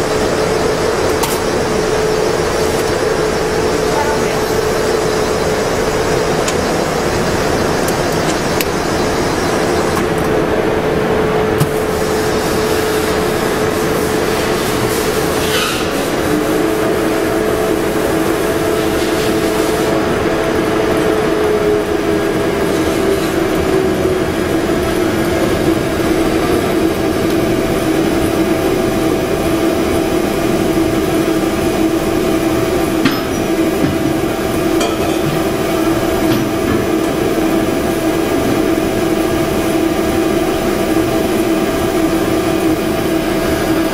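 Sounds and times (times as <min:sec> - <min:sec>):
mixer motor droning: 0:00.0 - 0:43.9.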